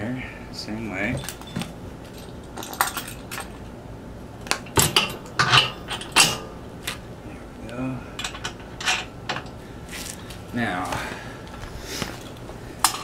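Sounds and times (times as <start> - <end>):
small metal parts clinking: 1.1 - 3.7, 4.5 - 6.6, 8.2 - 9.6, 12.2 - 13.0.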